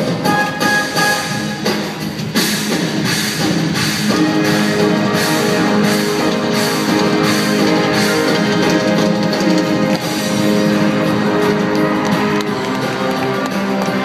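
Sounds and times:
live circus band music: 0.0s - 14.0s.

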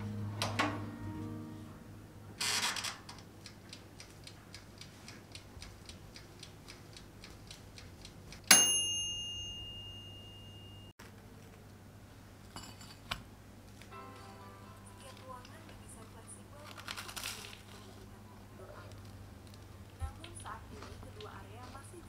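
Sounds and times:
oven timer ticking: 3.2s - 10.9s
timer bell ding: 8.5s - 10.9s.

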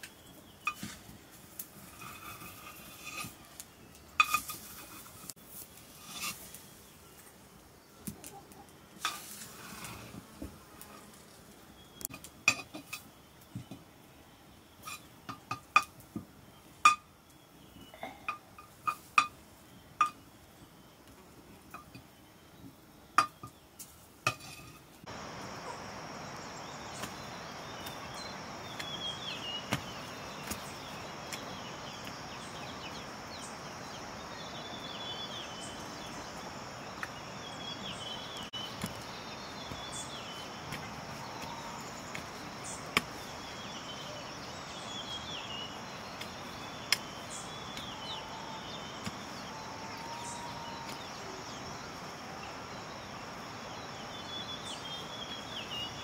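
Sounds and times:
birds chirping: 11.6s - 23.8s, 24.4s - 56.0s
high insect drone: 25.1s - 56.0s
digging tool striking soil: 26.9s - 32.3s, 38.6s - 43.4s.

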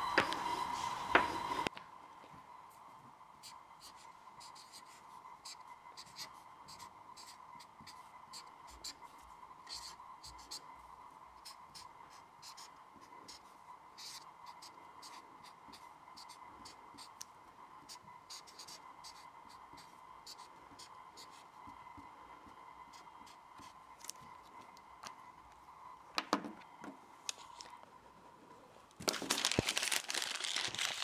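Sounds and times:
faint steady high tone: 0.0s - 1.8s.

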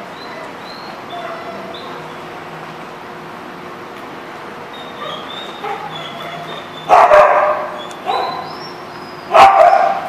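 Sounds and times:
steady background hum: 0.0s - 10.0s
dogs barking: 1.1s - 1.9s, 4.8s - 8.7s, 9.3s - 10.0s.

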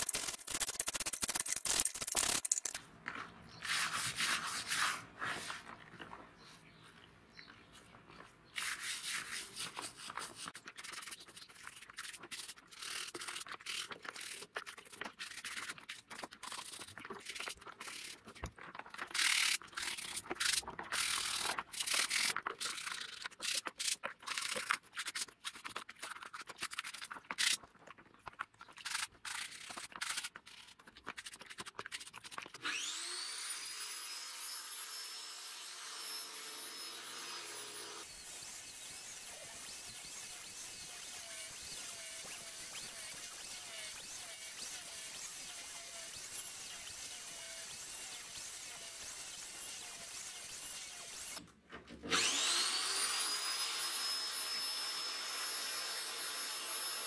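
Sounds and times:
brush scrubbing in soapy water: 3.6s - 5.8s, 8.6s - 21.1s
angle grinder whining: 32.6s - 51.4s, 52.1s - 57.0s.

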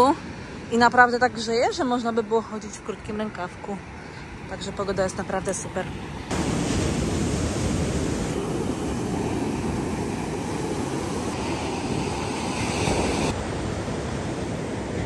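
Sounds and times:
sea surf rushing: 5.6s - 15.0s.

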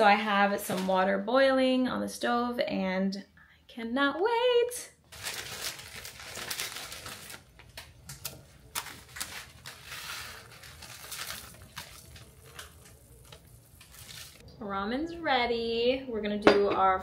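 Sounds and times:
plastic packet crinkling: 5.1s - 14.4s
water boiling and bubbling: 10.1s - 14.4s.

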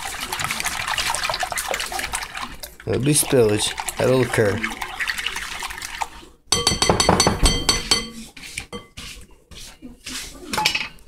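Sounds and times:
whisk clinking against glass bowl: 6.5s - 9.2s.

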